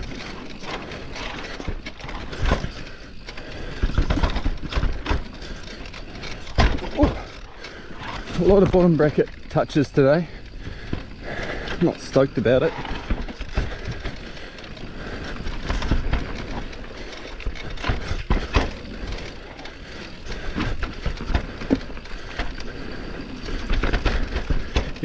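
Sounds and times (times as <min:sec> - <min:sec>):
bike knocking and clattering: 0:00.0 - 0:25.0
tyres rumbling over dirt: 0:00.0 - 0:25.0.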